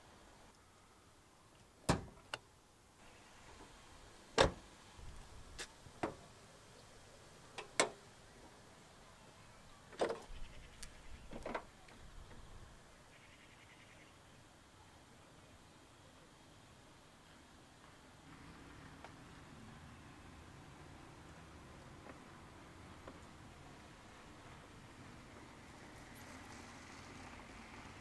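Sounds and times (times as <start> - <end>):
car bonnet clicks and clunks: 1.8 - 2.4, 4.4 - 4.6, 7.6 - 8.0, 9.9 - 10.3.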